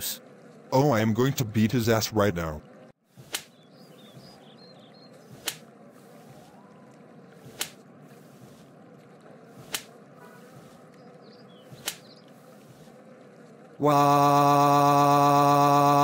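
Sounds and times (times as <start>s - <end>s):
faint background ambience: 0.0s - 16.0s
sharp slaps: 3.2s - 3.6s, 5.3s - 5.7s, 7.4s - 7.8s, 9.6s - 9.9s, 11.7s - 12.1s.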